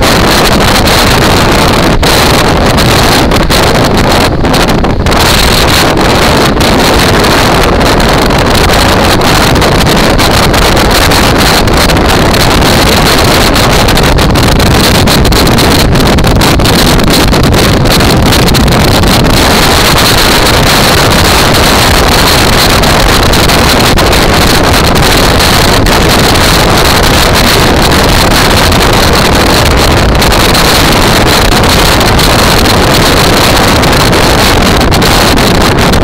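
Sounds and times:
road noise: 0:00.0 - 0:36.0
wind rushing over microphone: 0:00.0 - 0:36.0.

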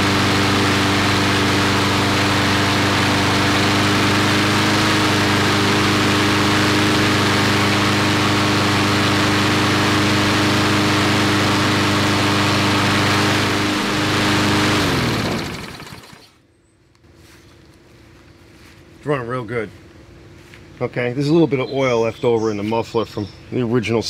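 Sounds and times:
lawnmower engine running: 0:00.0 - 0:16.4.

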